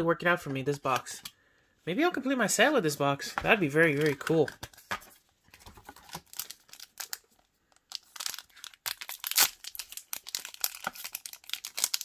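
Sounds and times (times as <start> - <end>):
foil wrapper crinkling: 6.0 - 12.0.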